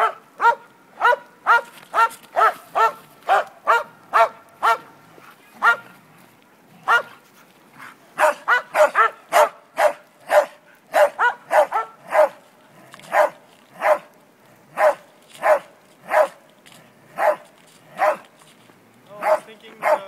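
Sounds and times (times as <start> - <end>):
dog barking: 0.0 - 4.9, 5.6 - 5.9, 6.8 - 7.2, 8.2 - 12.4, 13.1 - 14.1, 14.8 - 16.4, 17.2 - 17.4, 18.0 - 18.3, 19.2 - 20.0.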